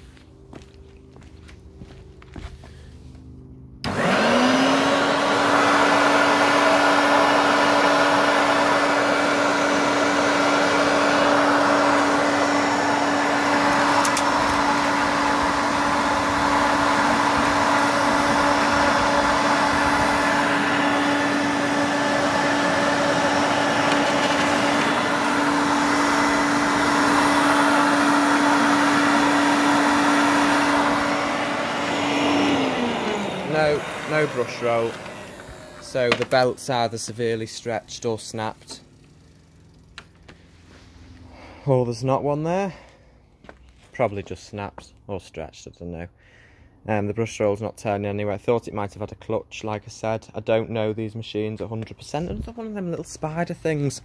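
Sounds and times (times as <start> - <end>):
vacuum cleaner whine: 3.2 - 41.8.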